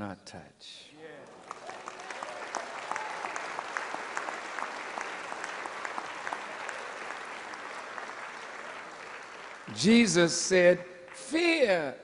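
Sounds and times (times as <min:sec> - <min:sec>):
audience applauding: 0:01.2 - 0:11.5.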